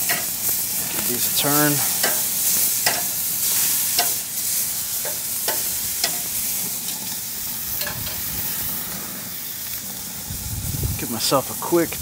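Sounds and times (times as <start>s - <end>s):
steaks sizzling on a grill: 0.0s - 12.0s.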